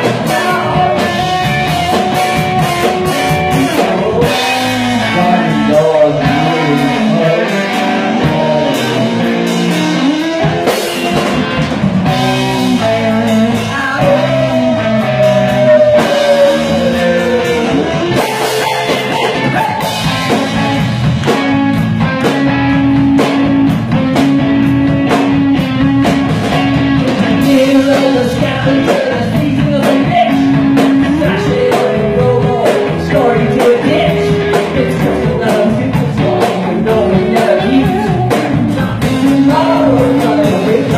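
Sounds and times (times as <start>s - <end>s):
man singing: 0.0s - 10.4s, 12.1s - 20.6s, 27.2s - 40.9s
drum kit: 0.0s - 40.9s
electric guitars: 0.0s - 40.9s.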